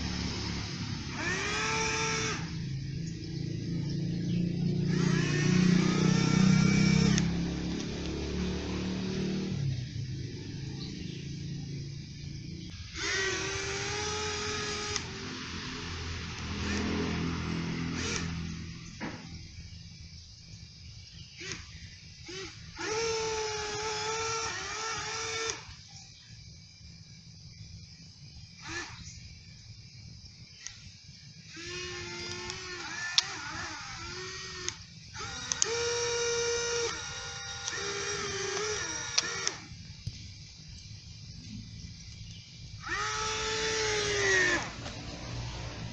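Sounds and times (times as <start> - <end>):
small motor whine: 0.0 - 45.9.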